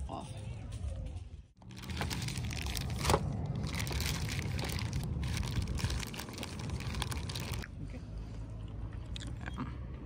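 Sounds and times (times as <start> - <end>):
low rumble: 0.4 - 9.6
plastic bag crinkling: 1.6 - 7.6.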